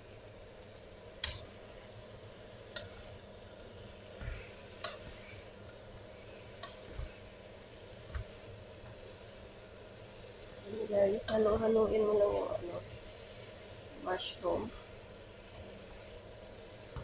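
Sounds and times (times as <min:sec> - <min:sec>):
mushrooms sizzling in a pan: 0:00.0 - 0:17.0
wooden spatula clicking on pan: 0:01.2 - 0:01.5, 0:02.7 - 0:03.0, 0:04.8 - 0:05.0, 0:06.6 - 0:06.8.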